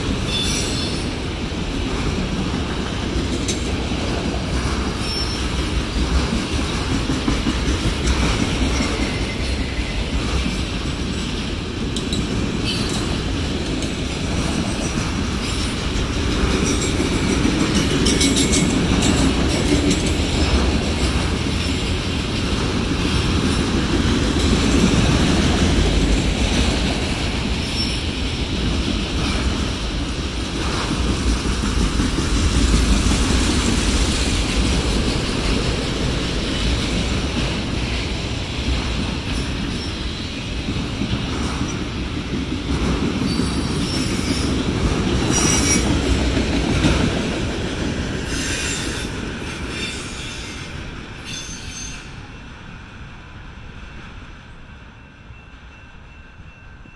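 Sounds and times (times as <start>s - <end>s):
freight train wheels rumbling: 0.0s - 56.9s
high-pitched wheel squeals: 51.2s - 52.2s.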